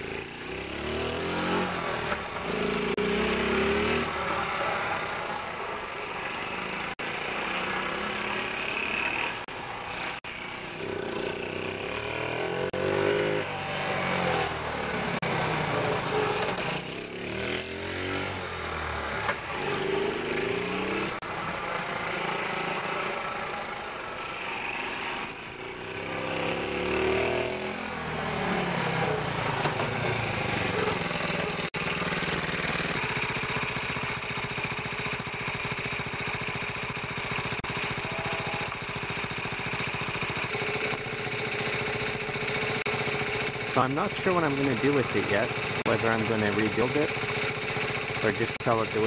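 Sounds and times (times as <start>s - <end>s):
minibike engine revving and idling: 0.0s - 49.0s.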